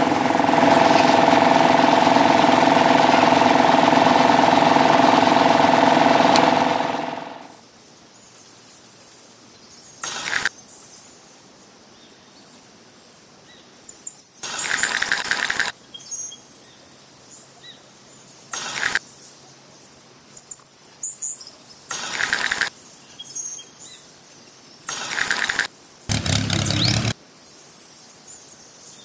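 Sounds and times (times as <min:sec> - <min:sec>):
short loud noise bursts: 0:00.0 - 0:07.5, 0:24.9 - 0:27.2.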